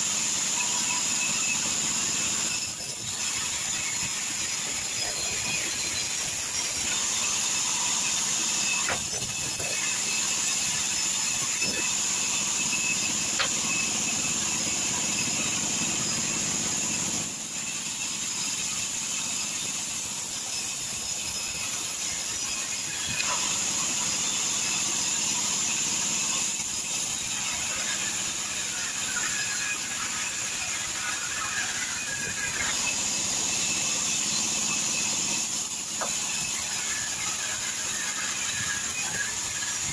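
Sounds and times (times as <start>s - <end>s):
band saw ripping timber: 1.5s - 17.2s.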